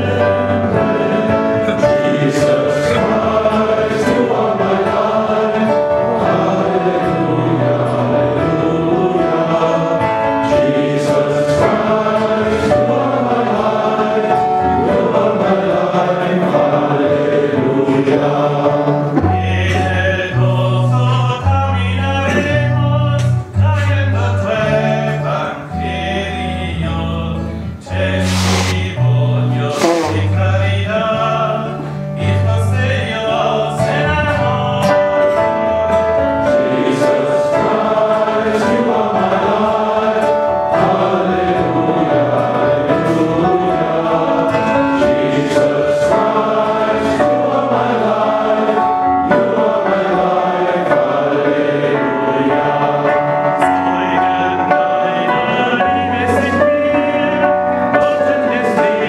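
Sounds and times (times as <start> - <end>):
choir singing a hymn: 0.0 - 59.0
instrumental accompaniment: 0.0 - 59.0
deep bass notes: 28.0 - 30.9.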